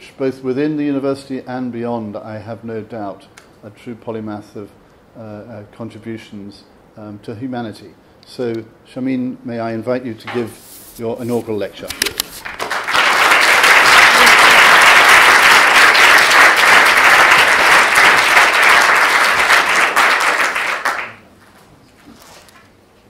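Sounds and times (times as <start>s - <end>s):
audience applauding: 12.0s - 21.2s.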